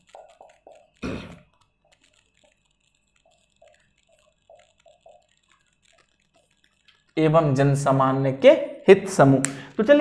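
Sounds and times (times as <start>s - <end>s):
marker pen squeaking on whiteboard: 0.0s - 7.6s.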